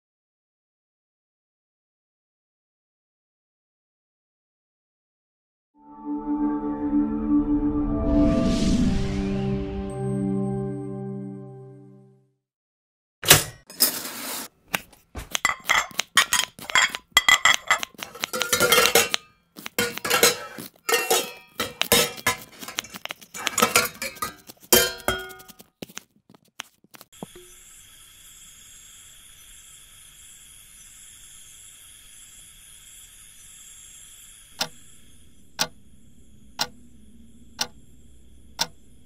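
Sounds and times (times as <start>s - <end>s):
kitchen utensils clattering: 13.3s - 14.5s, 15.1s - 25.5s.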